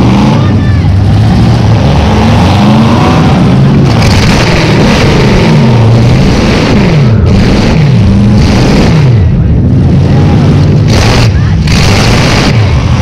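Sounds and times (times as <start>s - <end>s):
car engine revving hard: 0.0s - 13.0s.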